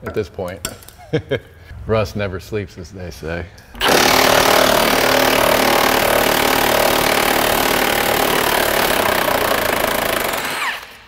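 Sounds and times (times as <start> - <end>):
cordless power tool running: 3.8 - 11.0.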